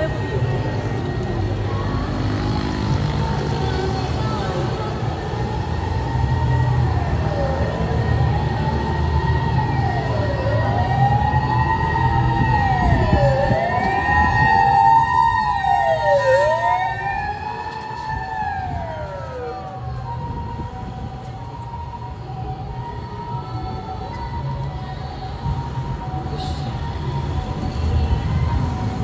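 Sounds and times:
emergency siren wailing: 0.0 - 29.0.

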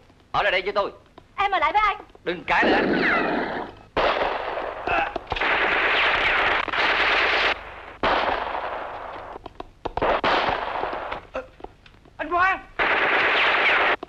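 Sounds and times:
gunshots with echoing tail: 2.6 - 9.4, 10.0 - 11.2, 12.8 - 14.0.

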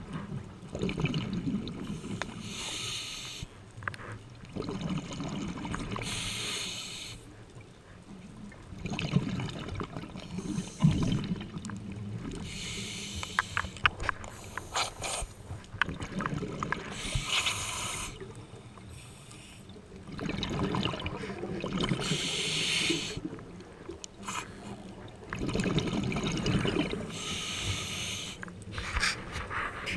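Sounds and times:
gurgle of exhaled bubbles: 0.0 - 2.4, 4.5 - 6.1, 8.6 - 12.5, 15.8 - 17.3, 19.9 - 23.8, 24.8 - 27.2
hissing regulator inhale: 2.0 - 3.5, 6.0 - 7.2, 12.4 - 15.4, 16.9 - 19.7, 22.0 - 23.2, 27.1 - 29.9.

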